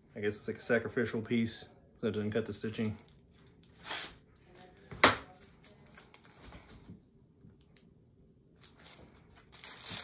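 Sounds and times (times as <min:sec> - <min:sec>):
plastic bag crinkling: 0:08.6 - 0:10.0.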